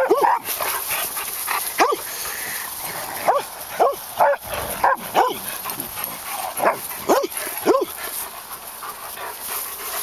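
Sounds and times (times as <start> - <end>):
dogs barking: 0.0 - 0.8, 1.8 - 2.1, 3.1 - 8.1.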